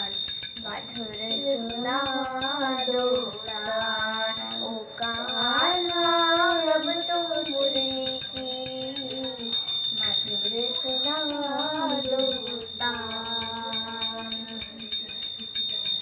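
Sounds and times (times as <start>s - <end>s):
person singing a devotional hymn: 0.0s - 15.4s
hand bell ringing rapidly: 0.0s - 16.0s.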